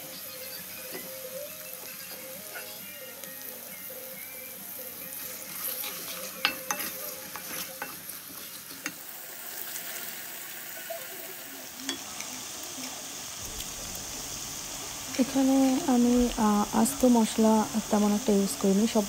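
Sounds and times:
onions sizzling in hot oil: 0.0 - 19.0.

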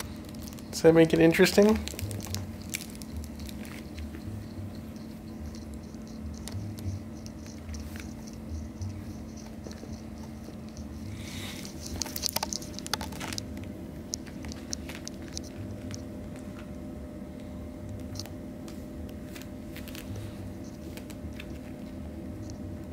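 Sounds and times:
kitten claws scratching: 0.0 - 13.5
low hum: 0.0 - 22.9.

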